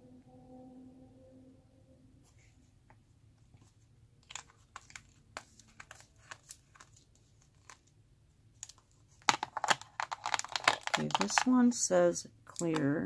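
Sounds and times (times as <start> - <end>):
plastic clicks and crinkles: 4.2 - 11.8, 12.5 - 13.0.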